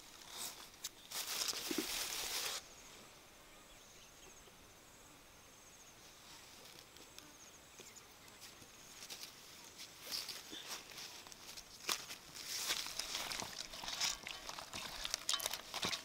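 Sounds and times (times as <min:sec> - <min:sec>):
footsteps in grass and leaves: 0:00.0 - 0:02.6, 0:07.8 - 0:16.0.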